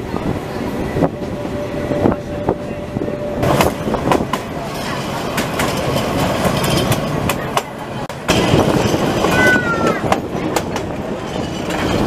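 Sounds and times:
diesel locomotive running: 0.0s - 12.0s
wheels clicking on track: 3.4s - 12.0s.

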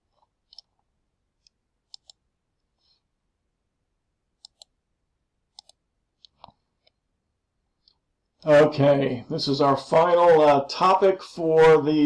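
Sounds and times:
computer mouse clicking: 0.4s - 0.8s, 1.4s - 2.2s, 4.4s - 4.8s, 5.5s - 7.0s.

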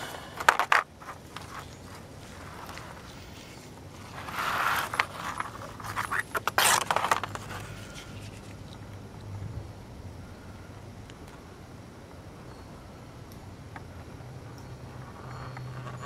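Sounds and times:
scraping: 0.0s - 8.9s, 14.4s - 16.0s.

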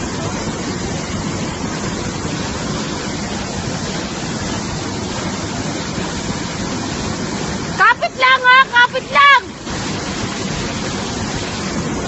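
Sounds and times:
river rushing over rocks: 0.0s - 12.0s.

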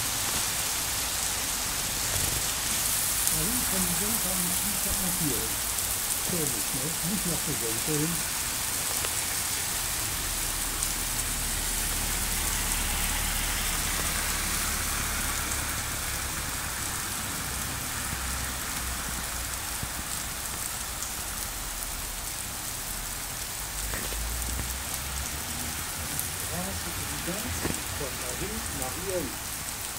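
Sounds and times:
heavy rain on pavement: 0.0s - 29.9s.

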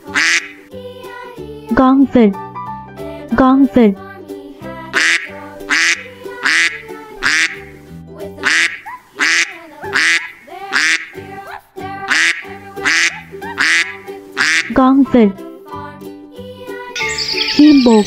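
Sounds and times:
ducks quacking: 0.0s - 0.6s, 5.0s - 7.7s, 8.4s - 14.8s
background music: 0.0s - 18.0s.

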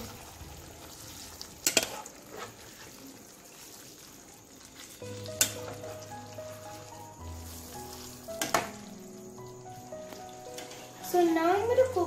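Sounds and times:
spatula stirring in frying pan: 0.0s - 8.8s
light sizzle: 0.0s - 12.0s.

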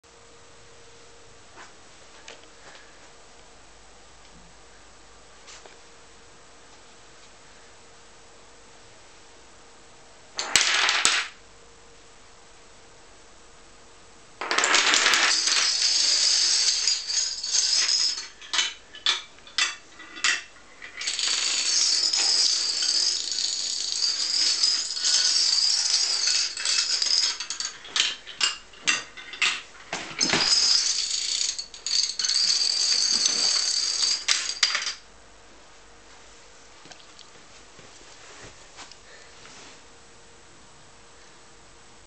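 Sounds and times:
toy dominoes toppling: 10.4s - 11.4s, 14.4s - 28.6s, 30.2s - 35.0s.

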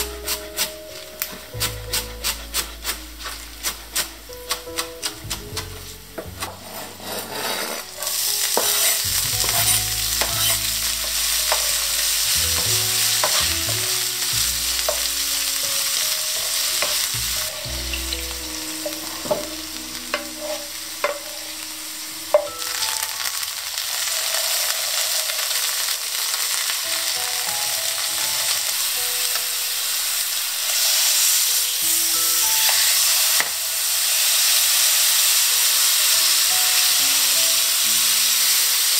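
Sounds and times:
oil sizzling in frying pan: 0.0s - 6.6s, 7.8s - 38.9s
spatula scraping and knocking pan: 0.4s - 13.9s, 14.7s - 21.5s.

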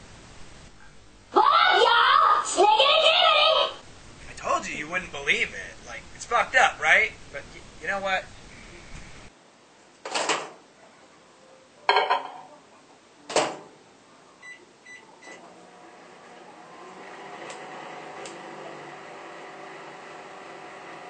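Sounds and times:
microwave oven humming: 14.4s - 21.0s.

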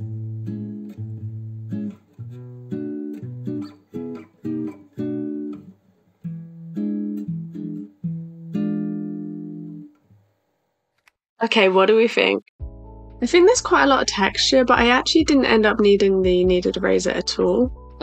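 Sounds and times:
plucked guitar melody: 0.0s - 10.0s.

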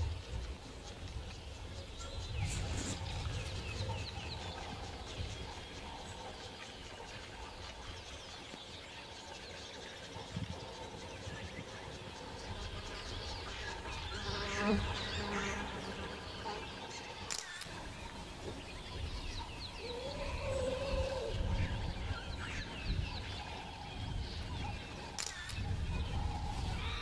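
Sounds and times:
birds chirping: 0.0s - 27.0s
sharp click: 17.3s - 17.7s, 25.2s - 25.6s.

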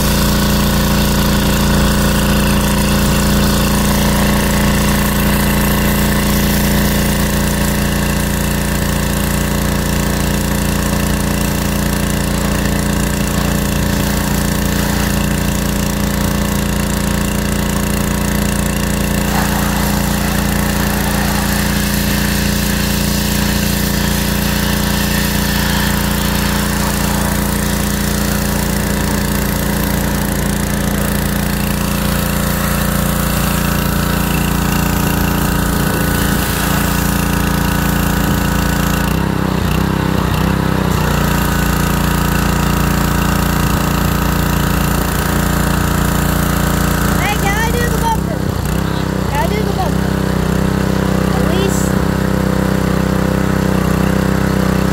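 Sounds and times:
water jet hissing on car: 0.0s - 39.0s
pressure washer motor humming: 0.0s - 54.9s.

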